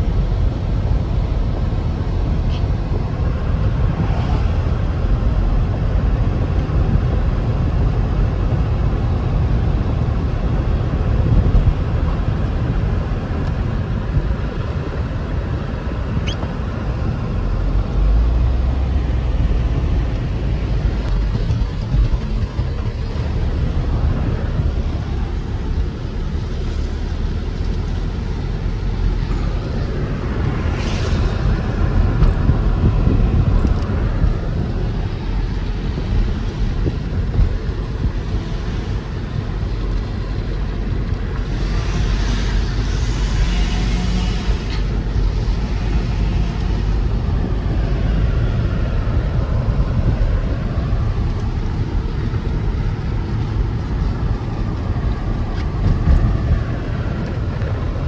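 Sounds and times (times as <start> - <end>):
car road rumble: 0.0 - 58.0
tyre hiss on wet road: 30.6 - 31.6, 41.5 - 44.6.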